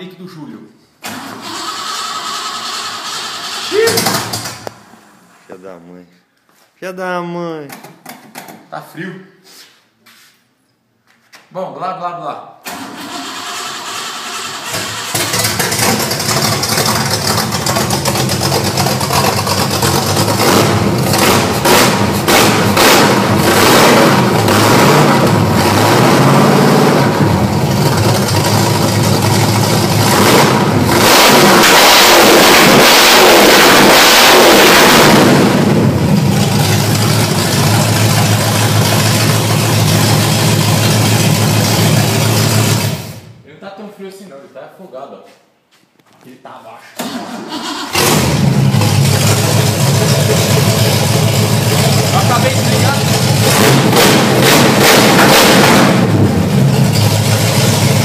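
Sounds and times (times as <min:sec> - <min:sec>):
car engine revving and idling: 0:14.7 - 0:43.3, 0:47.9 - 0:58.0.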